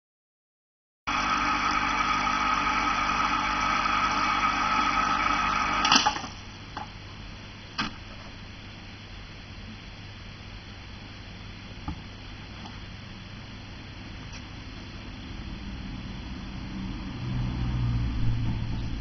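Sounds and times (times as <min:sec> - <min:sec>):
small motor humming: 0:01.1 - 0:06.3.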